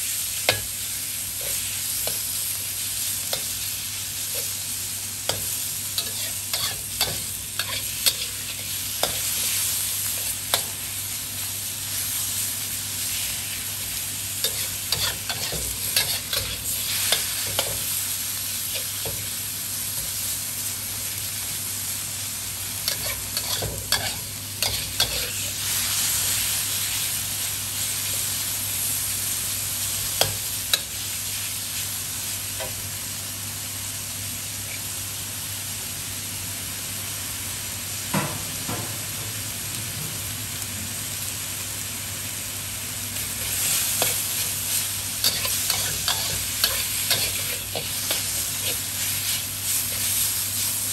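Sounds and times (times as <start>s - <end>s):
meat sizzling in a wok: 0.0s - 50.9s
metal spatula scraping a pan: 6.0s - 9.6s, 14.4s - 17.8s, 22.9s - 25.5s, 45.2s - 50.2s.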